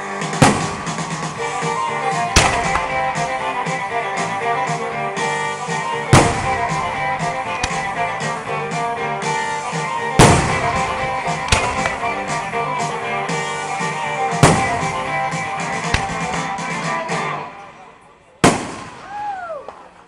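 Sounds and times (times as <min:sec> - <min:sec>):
guitar-led music: 0:00.0 - 0:17.7
firework bangs: 0:00.2 - 0:04.9, 0:05.7 - 0:17.2, 0:18.4 - 0:19.3
faint firework pops: 0:10.2 - 0:12.1.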